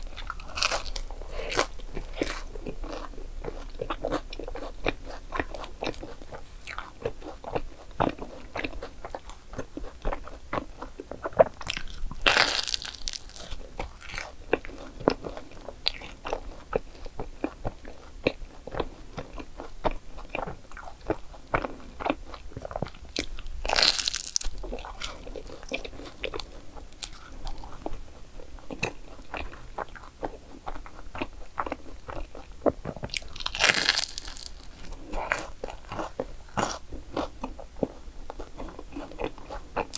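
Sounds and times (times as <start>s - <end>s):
crunching pastry while chewing: 0.0s - 39.9s.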